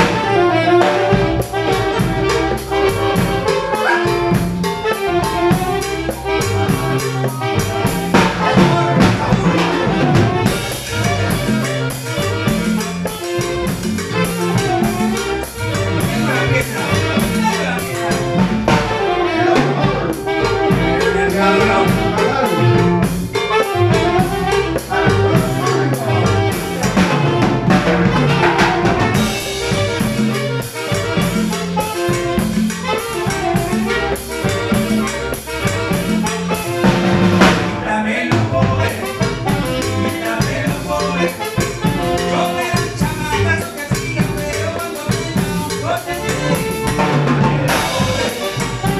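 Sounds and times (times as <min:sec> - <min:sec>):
congas: 0:00.0 - 0:48.9
drum kit: 0:00.0 - 0:48.9
electric bass: 0:00.0 - 0:48.9
keyboard: 0:00.0 - 0:48.9.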